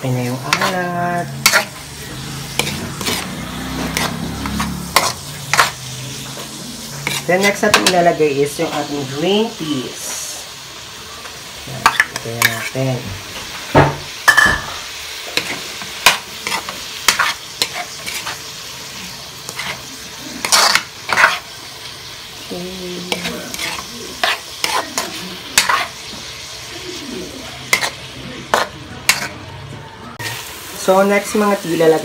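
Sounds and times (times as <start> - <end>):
metal spatula scraping pan: 0.0 - 9.1, 14.3 - 21.6, 23.0 - 26.3, 27.6 - 29.5
food sizzling in a wok: 0.0 - 32.0.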